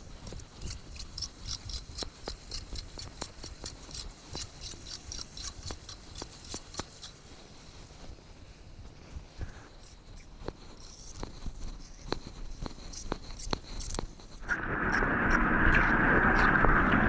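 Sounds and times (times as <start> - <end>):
low rumble: 14.4 - 17.0.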